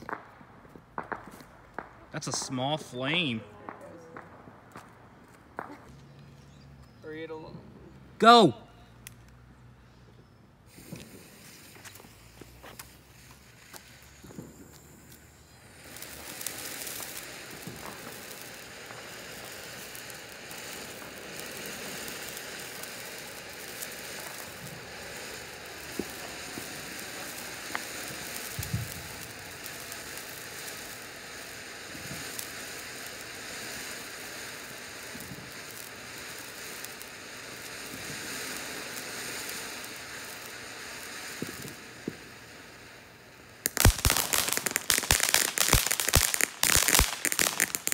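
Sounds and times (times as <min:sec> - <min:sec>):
faint crackles and pops: 0:00.0 - 0:07.6, 0:10.2 - 0:47.9
firework hissing: 0:00.0 - 0:47.9.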